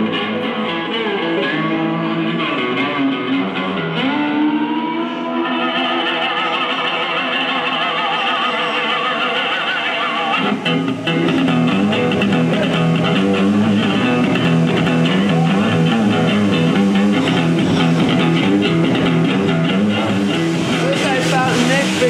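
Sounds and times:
electric guitar lead line: 0.0 - 22.0
low bass line: 10.4 - 22.0.

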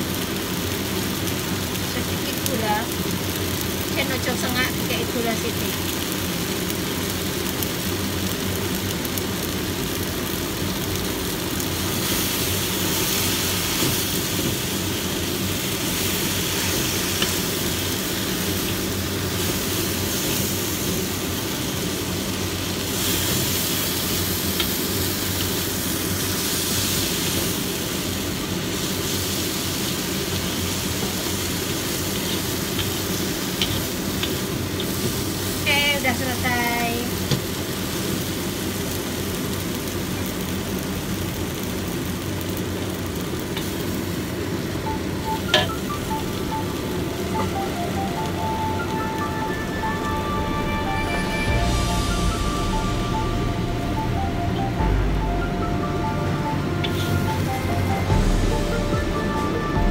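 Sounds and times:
leaves sizzling in a wok: 0.0 - 59.9
steady low hum: 45.0 - 59.9.

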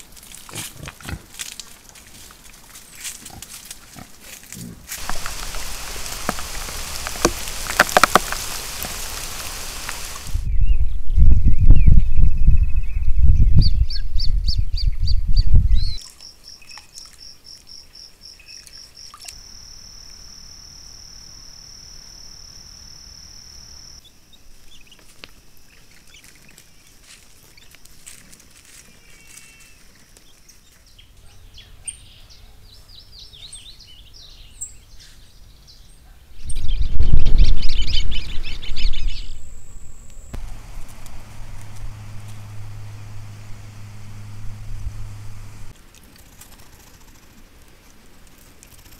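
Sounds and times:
wind rumble on microphone: 5.0 - 16.0, 36.4 - 45.8.

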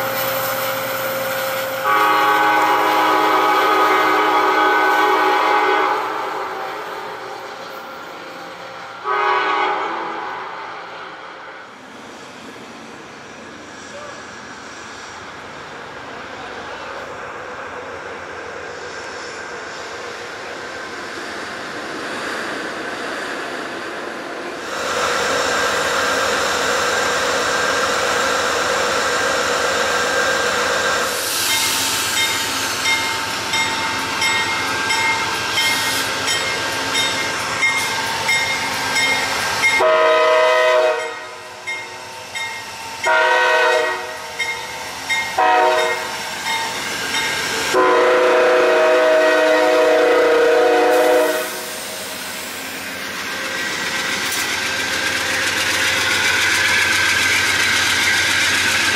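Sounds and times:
locomotive air horn blasts: 1.8 - 6.8, 9.0 - 10.5, 39.8 - 41.4, 43.0 - 44.3, 45.4 - 46.1, 47.7 - 51.8
train wheels clattering over rails: 51.7 - 58.9.

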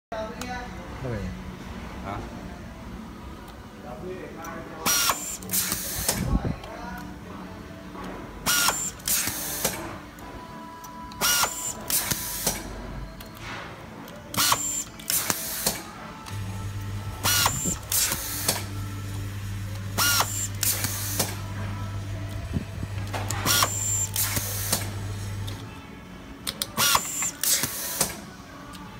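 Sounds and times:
electric screwdriver driving screws: 17.2 - 18.7, 20.0 - 21.4, 23.2 - 25.6, 26.6 - 28.1.

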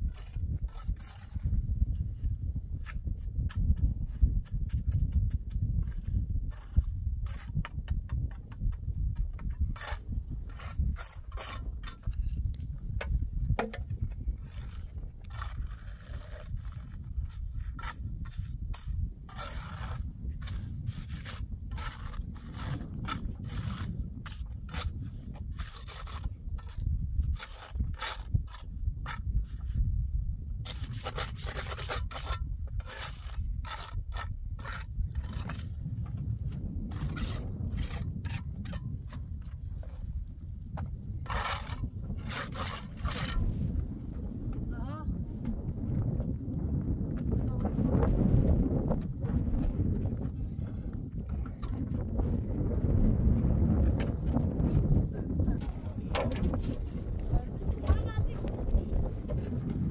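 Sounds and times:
mortar scraping: 0.0 - 29.9, 30.6 - 44.8, 47.2 - 59.9
concrete blocks clicking and knocking: 13.0 - 16.1.

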